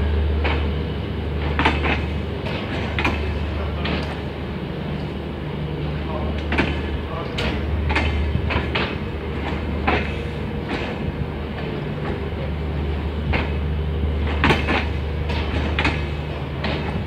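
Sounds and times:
train wheels clicking over rail joints: 0:00.0 - 0:05.2, 0:05.8 - 0:17.0
low steady rumble: 0:00.0 - 0:17.0.

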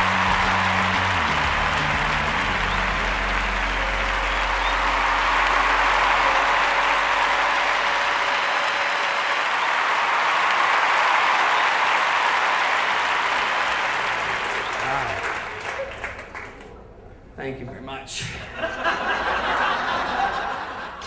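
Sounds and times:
background music: 0:00.0 - 0:09.2
audience applauding: 0:00.0 - 0:16.8, 0:18.6 - 0:21.0.

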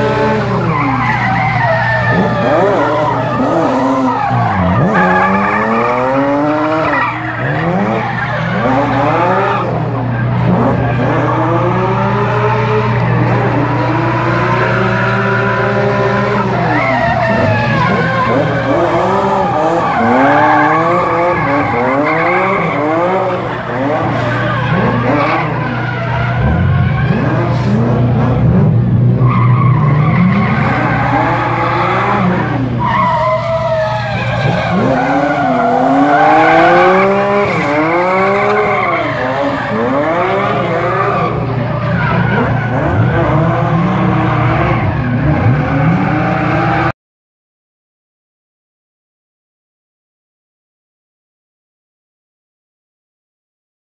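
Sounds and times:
car engine revving: 0:00.0 - 0:46.9
tyres skidding: 0:00.0 - 0:46.9.

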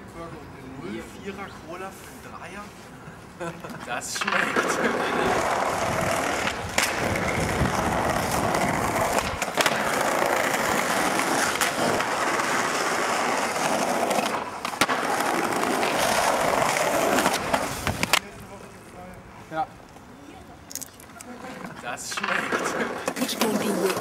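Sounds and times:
skateboard clacking on ground: 0:03.7 - 0:18.3, 0:21.0 - 0:24.0
skateboard wheels rolling on stone: 0:03.8 - 0:18.3, 0:21.0 - 0:24.0.

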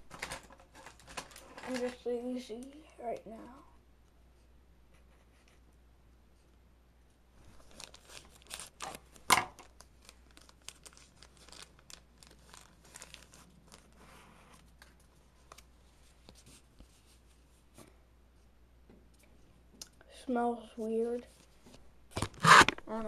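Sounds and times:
plastic packaging crinkling and tearing: 0:00.1 - 0:02.8, 0:07.5 - 0:15.7.

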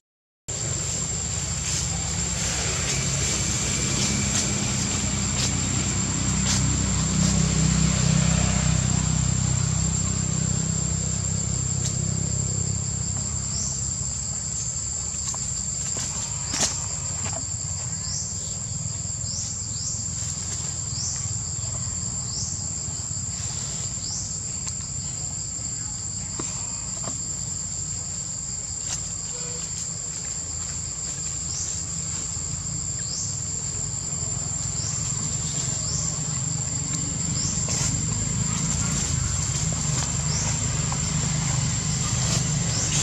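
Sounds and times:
low rumble: 0:00.5 - 0:25.6
insects droning: 0:00.5 - 0:43.0
insect rising chirps: 0:00.6 - 0:43.0.

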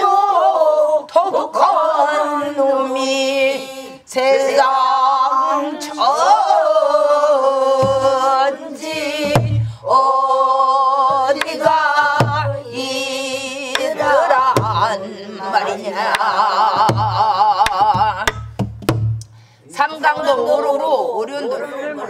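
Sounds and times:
voices singing with vibrato: 0:00.0 - 0:18.5, 0:19.6 - 0:22.0
barrel drum strokes: 0:13.7 - 0:15.0, 0:16.1 - 0:19.3.

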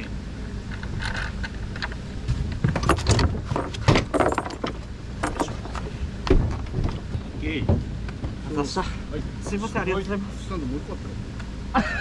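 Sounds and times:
steady low rumble: 0:00.0 - 0:12.0
metallic clinks and knocks: 0:00.7 - 0:02.0, 0:02.7 - 0:05.8.

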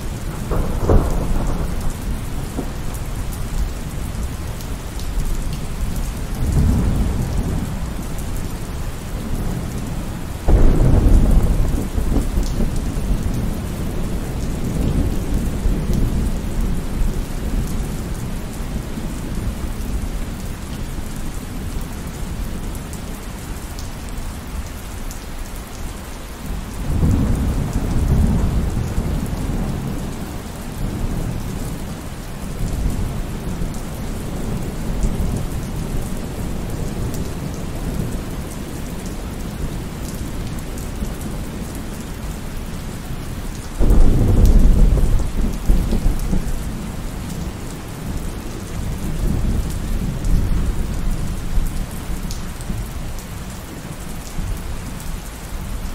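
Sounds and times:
thunder rumbling: 0:00.0 - 0:04.7, 0:05.6 - 0:18.5, 0:43.8 - 0:48.2
rain falling: 0:00.0 - 0:55.9.

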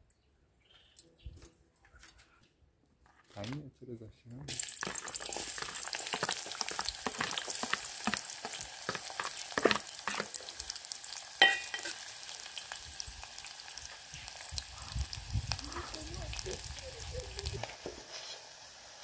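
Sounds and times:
onions sizzling in hot oil: 0:04.5 - 0:19.0.

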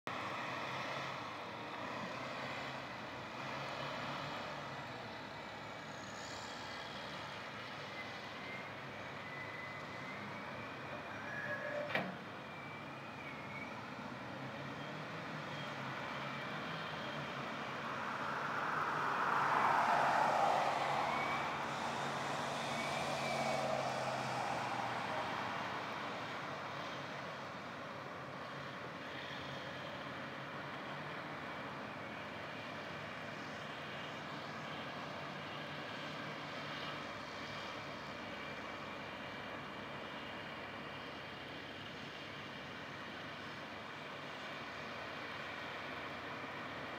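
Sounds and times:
distant engine noise: 0:00.2 - 0:27.5.

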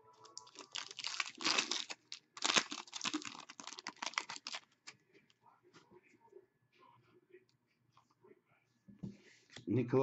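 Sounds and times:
foil wrapper crinkling and tearing: 0:00.2 - 0:04.9.

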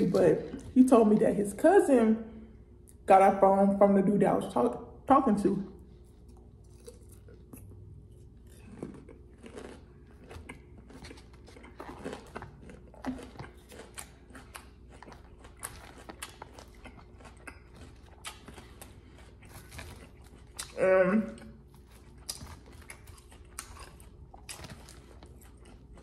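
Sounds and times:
person chewing lettuce: 0:05.8 - 0:26.0.

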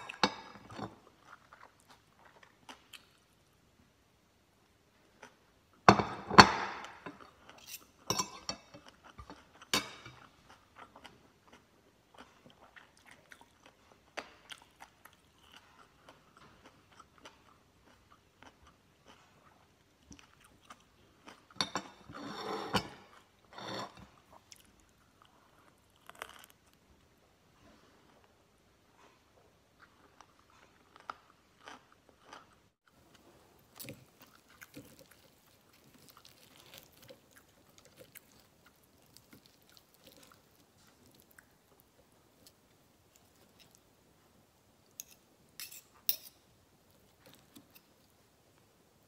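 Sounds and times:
person crunching vegetables: 0:25.6 - 0:26.8, 0:33.6 - 0:41.8.

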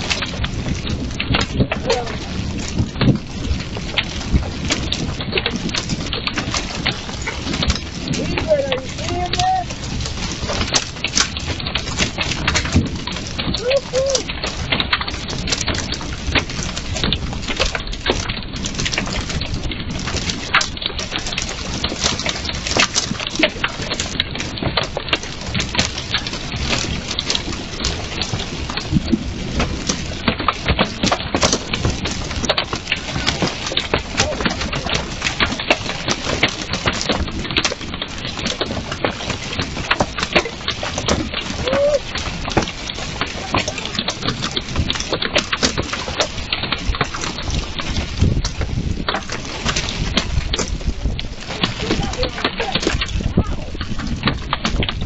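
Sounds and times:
hailstones striking hard surfaces: 0:00.0 - 0:55.0
rain hissing: 0:06.6 - 0:15.6, 0:39.4 - 0:54.1.

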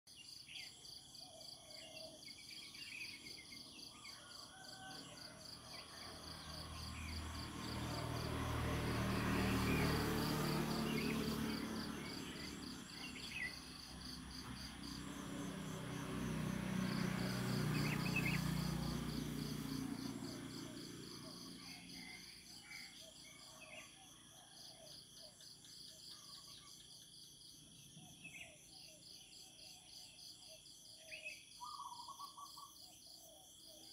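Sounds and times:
insects chirping: 0:00.2 - 0:24.4
bird chirps: 0:27.9 - 0:33.9.

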